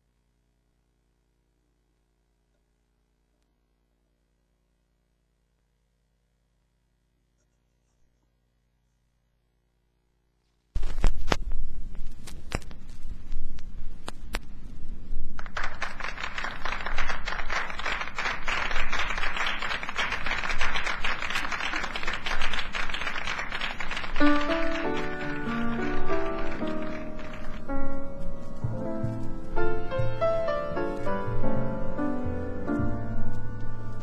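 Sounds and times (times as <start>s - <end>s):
vinyl crackles and pops: 10.4s - 34.0s
audience applauding: 15.4s - 27.9s
piano playing: 23.6s - 34.0s.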